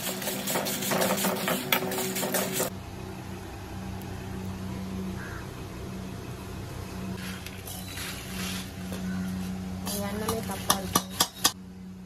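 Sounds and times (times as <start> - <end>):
ladle scraping steel pan: 0.0 - 2.7
low mechanical hum: 0.0 - 12.0.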